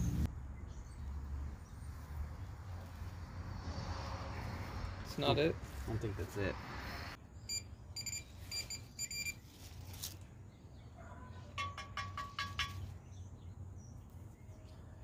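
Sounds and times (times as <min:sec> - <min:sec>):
metal detector beeping: 0:07.5 - 0:09.4.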